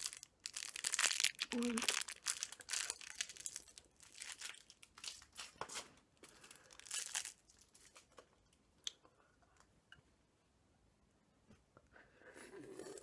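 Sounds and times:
plastic wrapper crinkling: 0.0 - 8.3.

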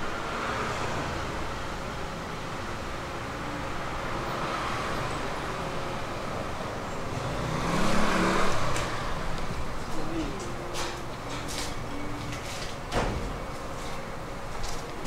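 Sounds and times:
road traffic noise: 0.0 - 15.0
vehicle passing: 2.8 - 12.7.

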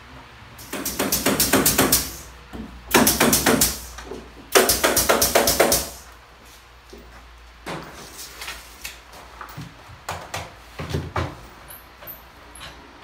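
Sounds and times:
tool striking wood: 0.6 - 2.2, 2.9 - 3.8, 4.6 - 6.0.

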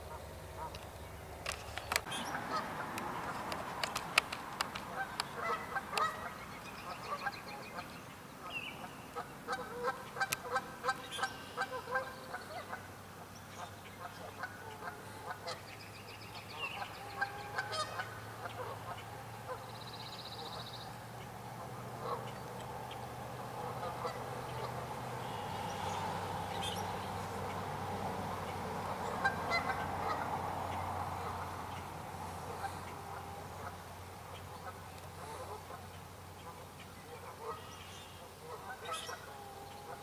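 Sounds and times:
geese honking: 0.0 - 0.9, 1.5 - 7.8, 8.5 - 12.9, 16.5 - 20.8, 21.5 - 40.0
sharp clicks: 0.7 - 2.1, 3.0 - 5.4.

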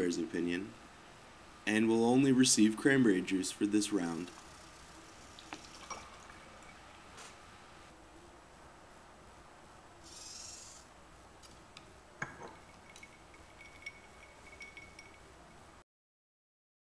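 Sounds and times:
liquid trickling into glass: 4.2 - 7.1, 12.5 - 15.3
glass clinking: 12.2 - 15.4
faint steady high tone: 12.2 - 15.8.

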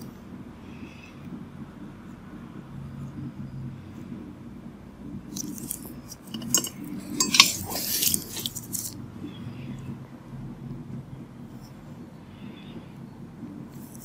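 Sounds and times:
steady low hum: 0.0 - 14.0
light clinking and rustling: 5.4 - 9.0.

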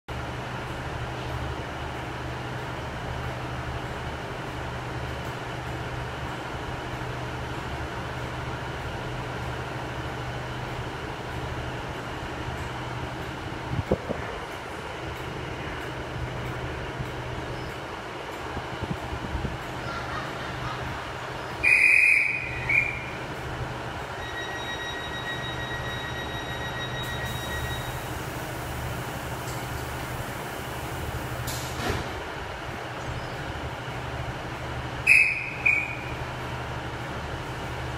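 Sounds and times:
train engine idling drone: 0.1 - 37.9
whistle blown: 21.6 - 23.1, 35.1 - 36.2
faint steady high tone: 24.2 - 28.0.

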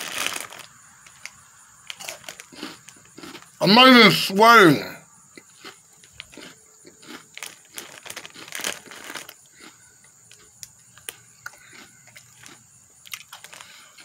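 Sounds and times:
plastic chip bag crinkling: 0.0 - 3.5, 6.1 - 9.8, 11.0 - 14.0.

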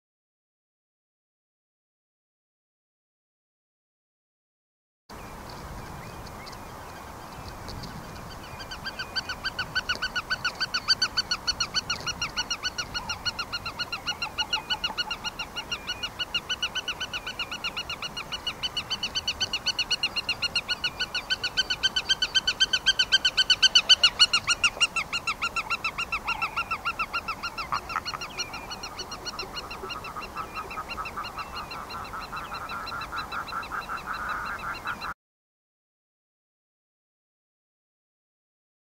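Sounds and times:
bird calling rapidly: 8.0 - 35.2.

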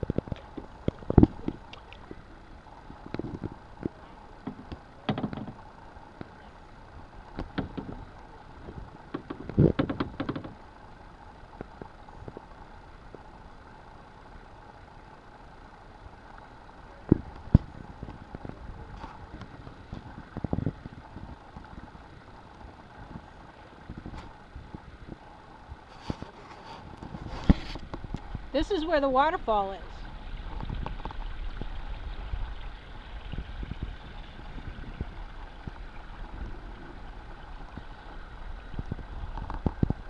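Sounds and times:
paddle knocks and splashes: 3.1 - 6.3, 7.4 - 8.1, 9.1 - 10.6.

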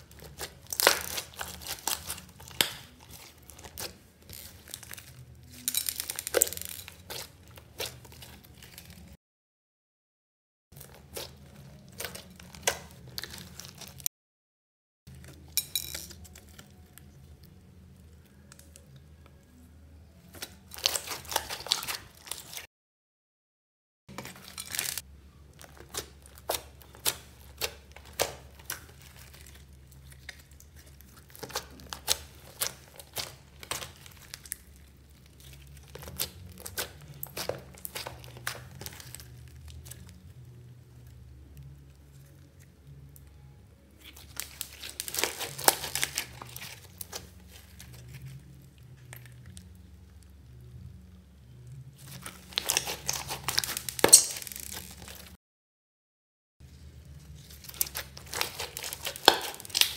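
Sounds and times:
hands squishing sticky slime: 0.0 - 9.2, 10.8 - 14.1, 20.3 - 22.7, 25.6 - 40.4, 44.0 - 48.4, 52.0 - 55.3, 57.4 - 59.9.

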